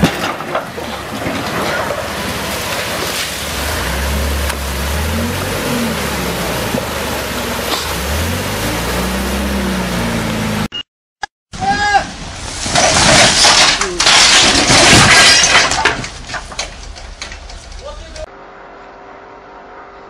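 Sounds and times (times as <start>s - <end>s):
water gushing across pavement: 1.5s - 8.4s
forklift engine revving: 3.4s - 10.7s.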